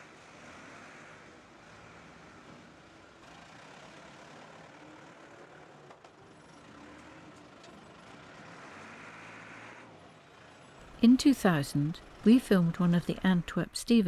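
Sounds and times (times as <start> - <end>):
machinery hum: 10.8 - 14.0.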